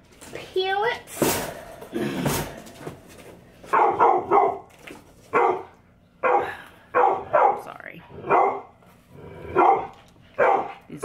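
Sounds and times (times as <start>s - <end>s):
dogs barking: 3.7s - 4.7s, 5.3s - 11.0s.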